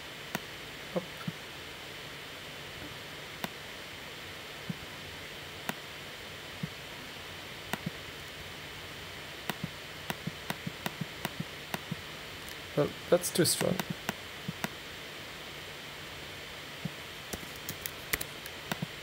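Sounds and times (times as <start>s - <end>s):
steady hiss: 0.0s - 19.0s
computer mouse clicks: 7.7s - 8.0s, 9.5s - 12.6s, 13.6s - 14.8s, 17.3s - 18.9s.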